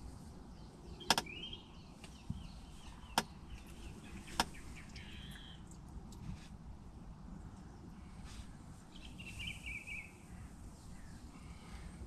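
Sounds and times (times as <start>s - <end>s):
bird chirping: 0.5s - 5.8s, 8.9s - 11.9s.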